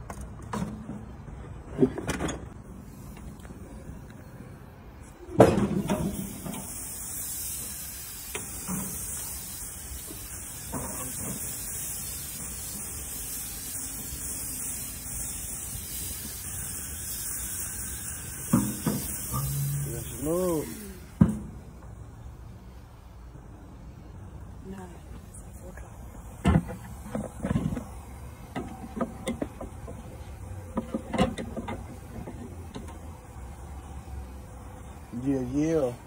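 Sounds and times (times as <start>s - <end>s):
meat sizzling on a grill: 5.9s - 21.2s.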